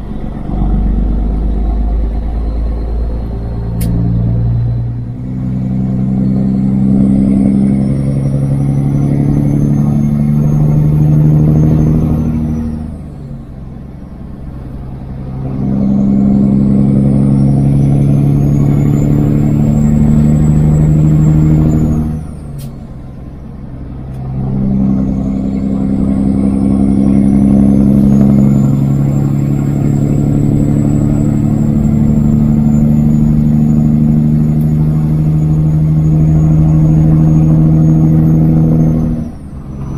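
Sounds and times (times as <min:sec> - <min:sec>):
diesel truck engine accelerating: 0:00.0 - 0:39.9
high whine: 0:23.4 - 0:39.9.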